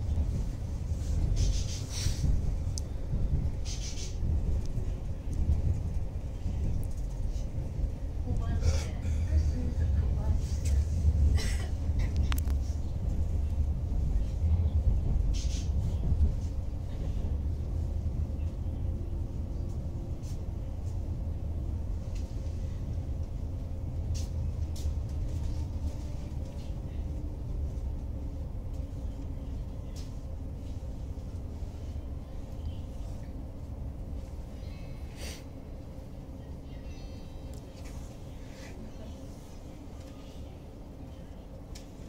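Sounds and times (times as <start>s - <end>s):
train wheels rumbling on rail: 0.0s - 42.0s
faint clicks: 41.3s - 41.9s.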